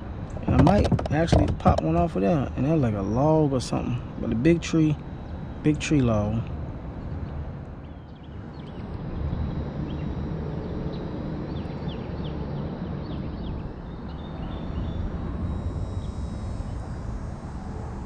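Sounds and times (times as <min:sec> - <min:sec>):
wind buffeting microphone: 0:00.0 - 0:02.6
birds chirping: 0:00.4 - 0:15.2.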